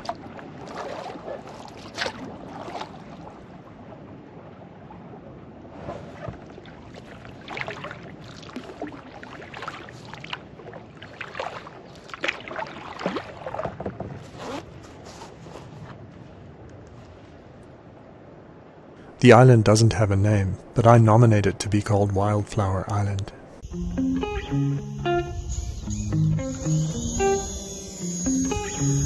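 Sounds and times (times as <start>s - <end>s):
lake water lapping: 0.0s - 17.6s.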